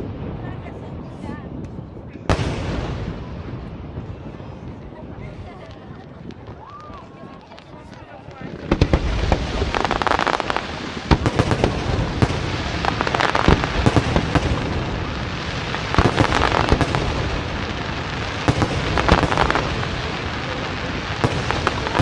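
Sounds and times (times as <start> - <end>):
crackling hiss: 5.4 - 22.0
firework shells bursting: 8.7 - 22.0.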